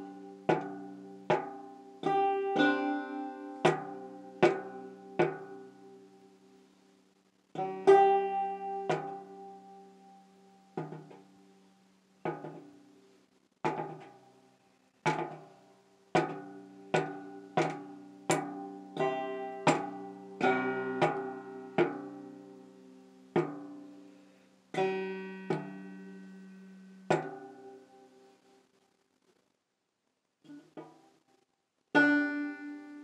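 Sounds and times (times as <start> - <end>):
banjo open strings strummed: 0.0 - 6.4, 7.6 - 11.5, 12.2 - 13.0, 13.6 - 14.2, 15.1 - 28.4, 31.9 - 33.0.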